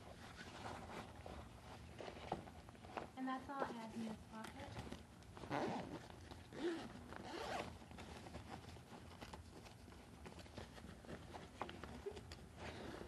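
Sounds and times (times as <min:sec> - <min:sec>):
bag handling: 0:00.2 - 0:13.0
zipper on fabric backpack: 0:05.4 - 0:07.8, 0:12.6 - 0:13.0.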